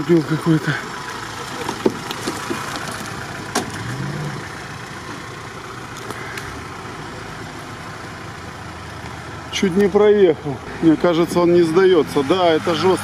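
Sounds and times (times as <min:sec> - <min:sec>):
car engine running at low speed: 0:00.0 - 0:13.0.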